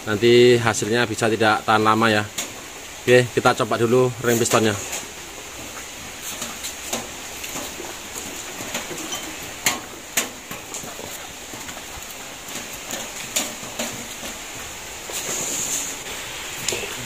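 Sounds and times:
engine parts clicking and knocking: 4.5 - 16.0.

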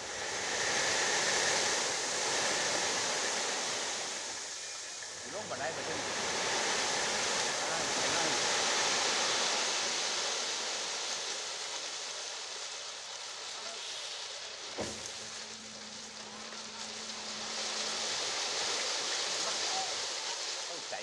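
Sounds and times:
steady low hum: 0.0 - 21.0
crushed stone pouring: 6.5 - 21.0
sharp knock: 14.8 - 15.2.

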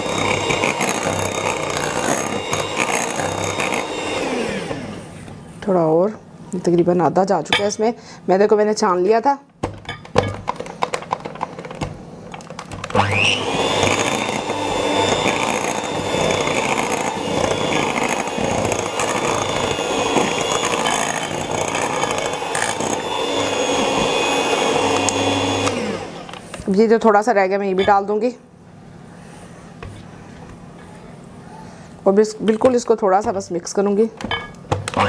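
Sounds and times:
electric hand mixer whirring: 0.0 - 5.4, 12.7 - 26.6.

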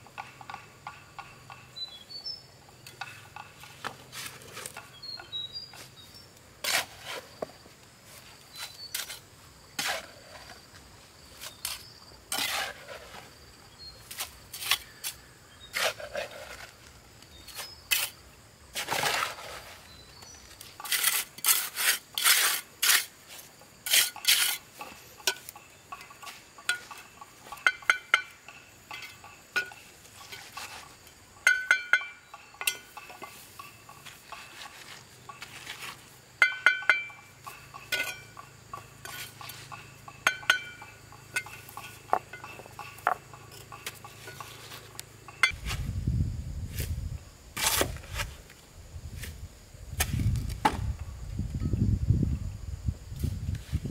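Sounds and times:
hard objects clinking and knocking: 36.4 - 44.6.

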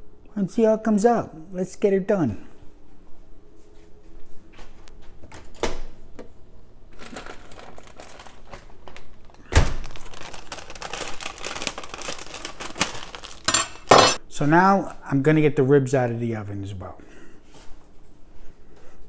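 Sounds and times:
plastic bag crinkling: 6.9 - 13.9.

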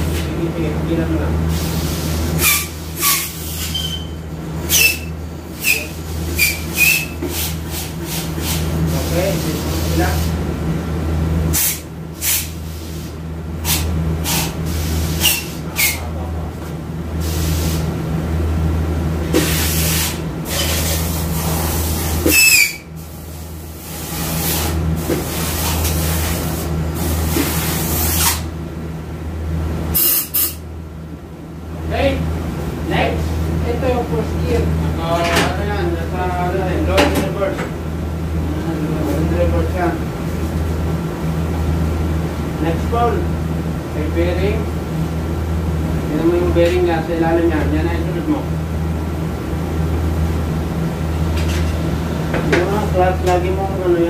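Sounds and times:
steady low hum: 0.0 - 54.0
air hissing bursts with squeal: 1.5 - 10.3, 11.5 - 16.1, 19.3 - 28.5, 29.9 - 30.6.

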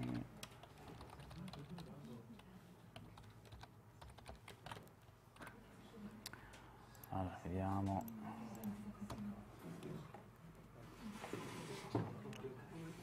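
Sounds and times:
typing on keyboard: 0.0 - 2.0, 3.0 - 5.5.

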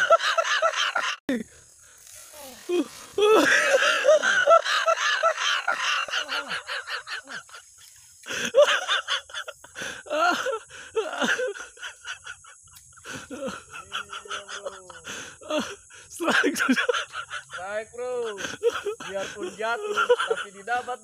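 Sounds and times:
man laughing hard: 0.0 - 1.2, 2.7 - 7.7, 8.3 - 21.0
gasping breaths: 9.6 - 11.8, 15.0 - 16.2.

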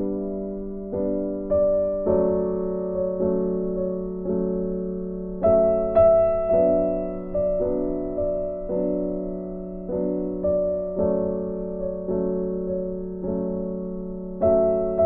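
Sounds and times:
soft piano chords: 0.0 - 15.0.

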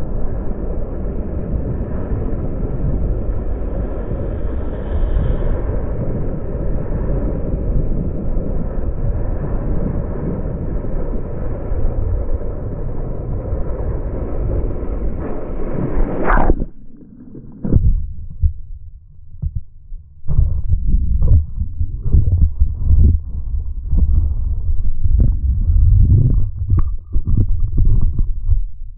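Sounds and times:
water rushing past camera: 13.4 - 19.0
sharp water splash: 15.2 - 18.1
underwater thumps and gurgles: 15.2 - 28.9.

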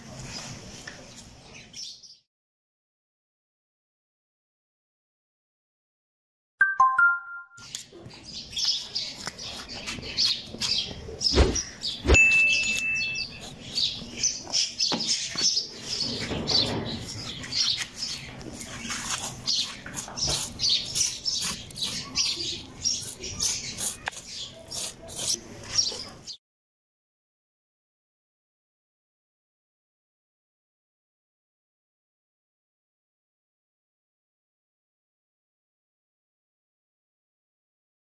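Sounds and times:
small birds chirping: 7.7 - 26.4.

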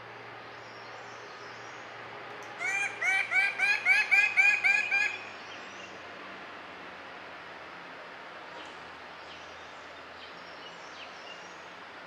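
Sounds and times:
bird giving loud arched calls: 2.6 - 5.3.

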